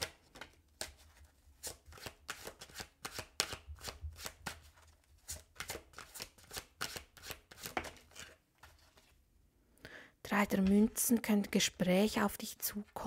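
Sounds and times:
cards being shuffled by hand: 0.0 - 9.2.

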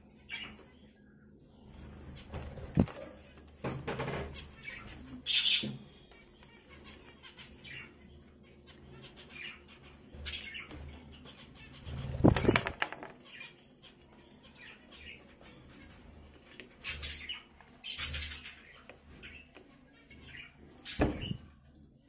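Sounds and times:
bird wings fluttering: 2.2 - 3.1, 11.8 - 13.2.

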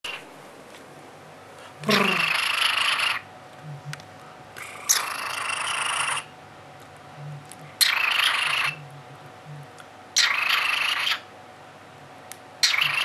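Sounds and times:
cockatiel raspy purring call: 1.8 - 3.2, 4.6 - 6.3, 7.8 - 8.8, 10.2 - 11.2, 12.6 - 13.0.

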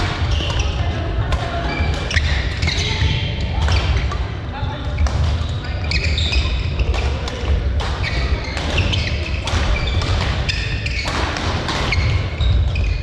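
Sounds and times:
rackets hitting shuttlecock: 0.0 - 4.3, 5.0 - 13.0
shoe squeaks on court floor: 1.7 - 4.2, 4.9 - 7.1, 8.0 - 13.0.

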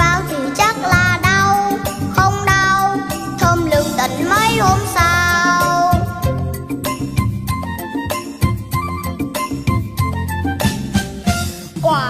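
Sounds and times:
boy singing: 0.0 - 6.3
upbeat instrumental backing track: 0.0 - 12.0.

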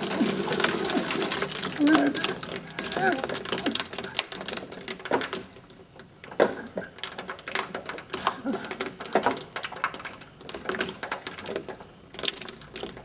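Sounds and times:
wet squelching slurry: 0.0 - 5.0.

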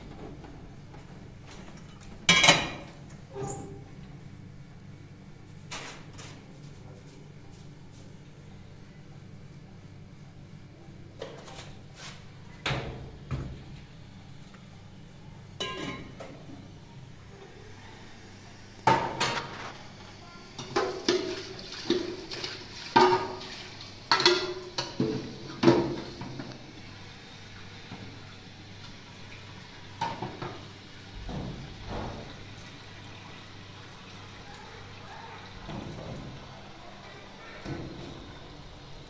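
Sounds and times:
pots and dishes clattering: 0.0 - 3.9, 15.6 - 16.7, 18.8 - 19.6, 20.6 - 26.6, 30.0 - 32.4.

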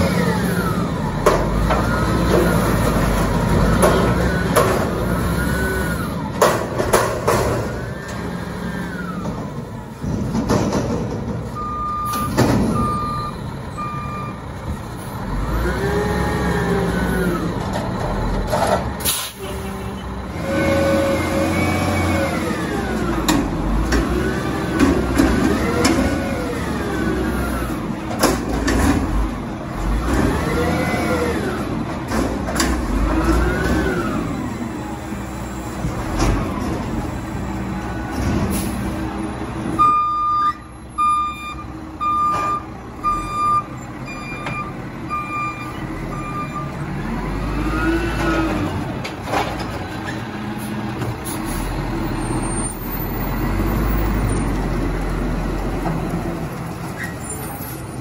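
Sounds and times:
truck diesel engine revving: 0.0 - 10.3, 11.6 - 39.8, 40.8 - 49.3
short beeps: 39.8 - 46.7.

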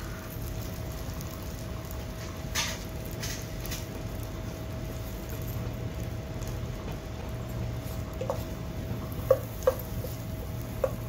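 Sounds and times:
butter sizzling in a pan: 0.0 - 11.0
steady low hum: 0.0 - 11.0
wooden spatula knocking on pan: 9.2 - 10.2, 10.8 - 11.0.

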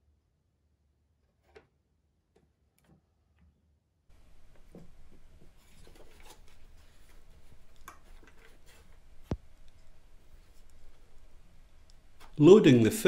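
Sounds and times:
rustling of hands handling camera: 4.6 - 11.2.

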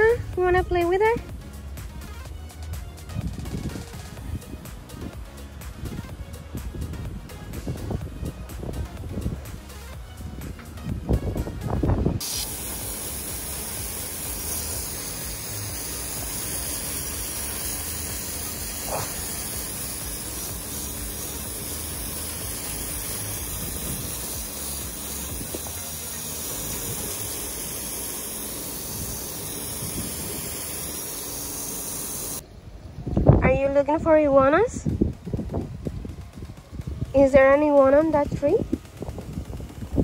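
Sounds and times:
hose spraying water onto concrete: 12.1 - 32.4
dog snapping: 18.9 - 19.2.

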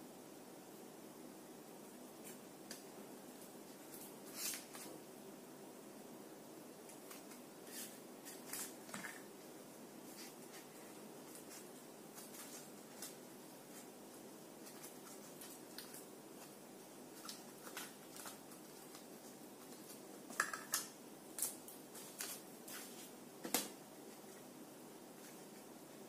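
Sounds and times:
paper and cardboard rustling: 3.7 - 5.0, 6.9 - 9.3, 10.0 - 14.0, 14.6 - 20.5
crinkles and clicks: 14.6 - 22.8.

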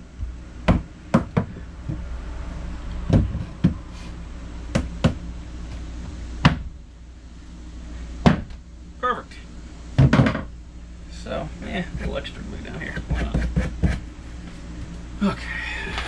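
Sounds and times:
hammer knocking wooden board: 10.0 - 10.5, 12.9 - 14.0.

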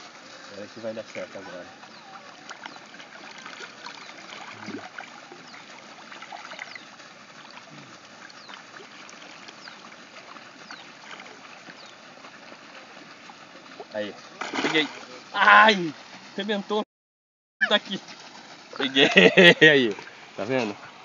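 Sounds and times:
fish splashing in water: 0.0 - 16.3.

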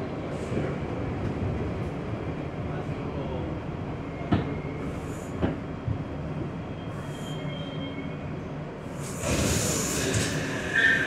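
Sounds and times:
subway train rumbling: 0.0 - 11.0
high brake squeal: 6.7 - 8.3, 9.0 - 11.0
air hiss: 8.9 - 10.8.

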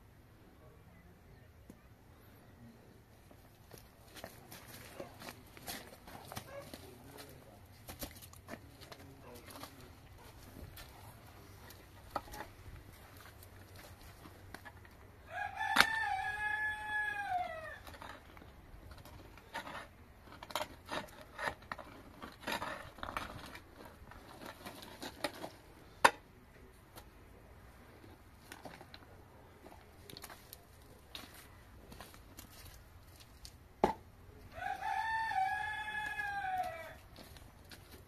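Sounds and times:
rooster crowing: 15.3 - 17.8, 34.5 - 37.0.

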